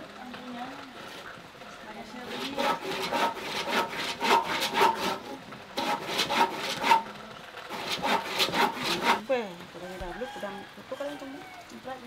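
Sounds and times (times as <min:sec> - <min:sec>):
handsaw cutting wood: 0:02.2 - 0:07.1, 0:07.7 - 0:09.2.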